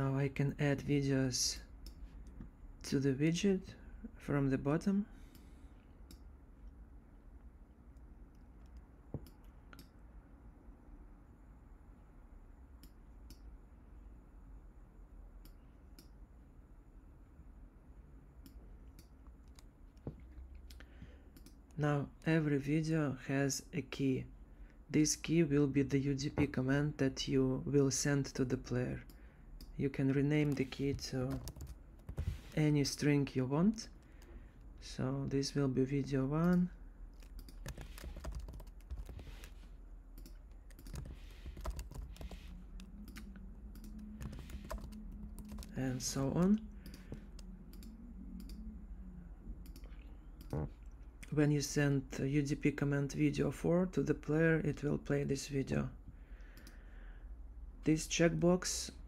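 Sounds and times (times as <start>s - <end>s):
low steady hum: 0.0s - 59.0s
computer mouse clicks: 18.4s - 21.6s, 36.4s - 45.7s, 46.4s - 48.7s, 49.6s - 50.6s.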